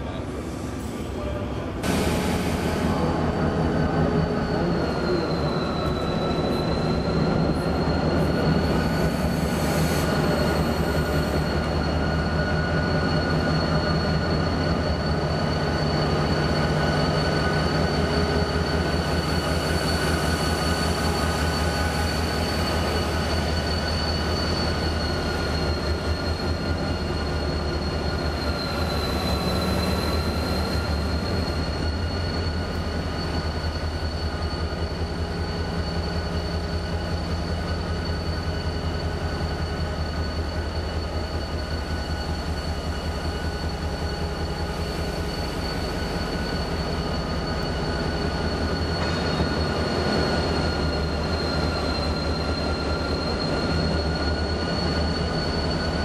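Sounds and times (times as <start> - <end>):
high squeal on rail: 0.0 - 56.0.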